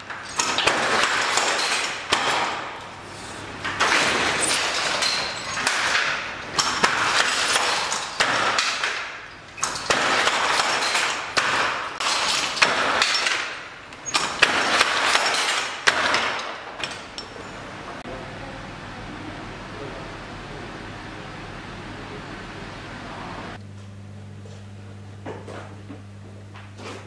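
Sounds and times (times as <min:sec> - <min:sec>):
loom rattling and clacking: 0:00.0 - 0:03.0, 0:03.6 - 0:18.0.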